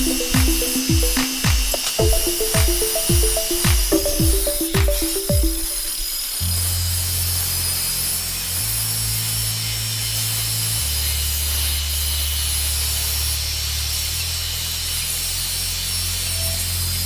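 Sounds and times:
music with bass notes: 0.0s - 6.0s.

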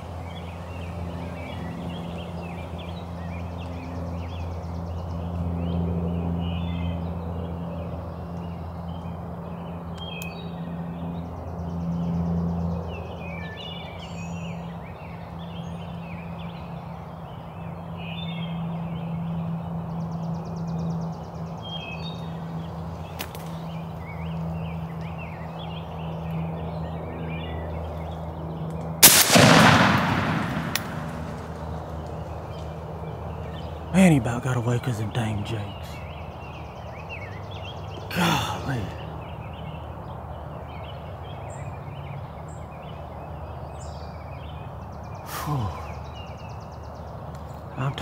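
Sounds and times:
bird calls: 0.0s - 48.0s
steady low hum: 14.9s - 37.2s
shotgun blast: 29.0s - 32.0s.

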